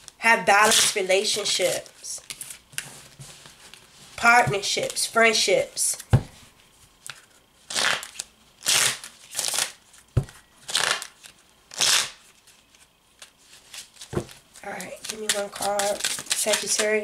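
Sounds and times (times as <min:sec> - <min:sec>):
cards shuffling: 0:07.0 - 0:17.0.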